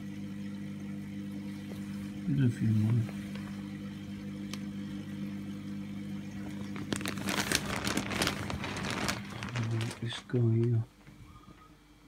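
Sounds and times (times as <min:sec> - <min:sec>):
low electrical hum: 0:00.0 - 0:12.0
phone handling crackle: 0:06.6 - 0:10.8.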